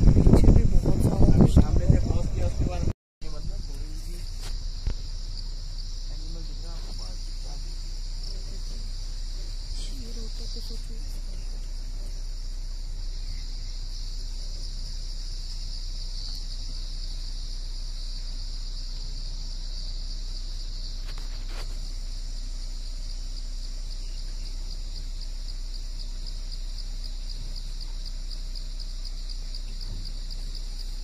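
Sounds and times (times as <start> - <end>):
insects buzzing: 0.0 - 31.0.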